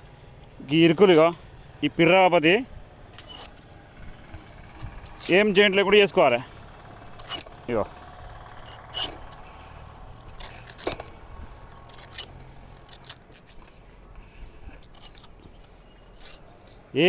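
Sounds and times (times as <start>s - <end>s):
strips pulled away: 3.1s - 3.7s, 7.2s - 16.8s.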